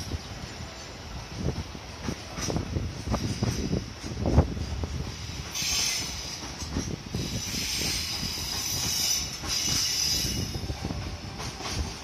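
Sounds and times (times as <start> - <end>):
train rumble and clatter: 0.0 - 12.0
steel wheels squealing: 5.0 - 11.9.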